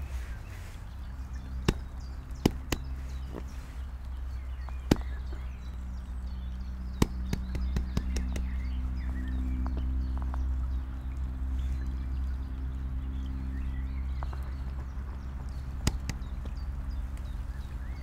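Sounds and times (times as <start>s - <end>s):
steady low hum: 0.0s - 18.0s
sharp taps on umbrella: 1.6s - 3.6s, 4.7s - 5.3s, 6.9s - 8.6s, 15.8s - 16.4s.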